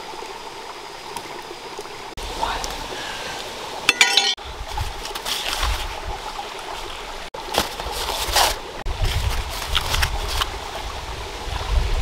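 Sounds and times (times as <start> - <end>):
short clinking rattle: 3.9 - 4.4
rustling of corn husks and wicker: 7.4 - 10.8.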